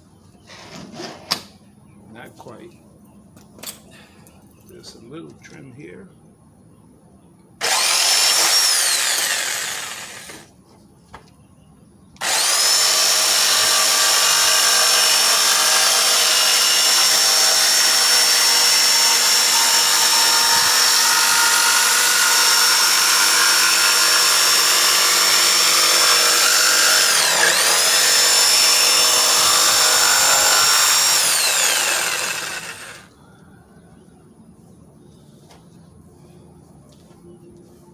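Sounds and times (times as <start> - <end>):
jigsaw cutting wood: 7.6 - 10.5, 12.2 - 33.1.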